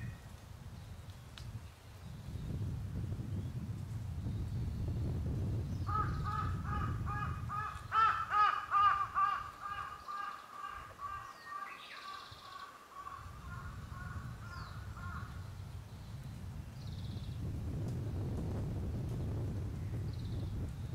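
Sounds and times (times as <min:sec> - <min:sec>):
crow cawing: 0:05.9 - 0:14.3.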